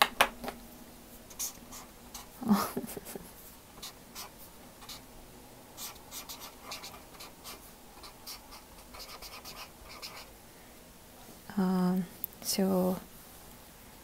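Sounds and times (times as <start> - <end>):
marker writing on paper: 1.3 - 2.4, 3.8 - 5.0, 5.8 - 10.3.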